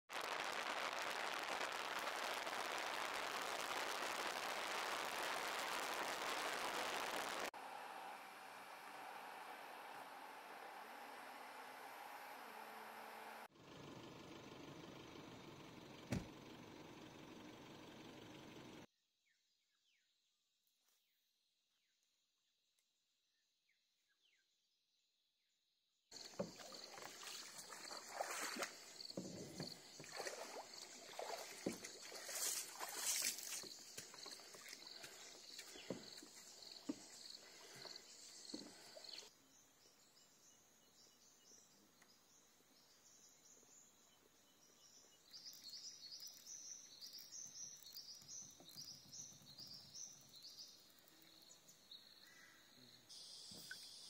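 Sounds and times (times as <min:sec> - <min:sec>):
paddle splashing in water: 0:26.2 - 0:36.4.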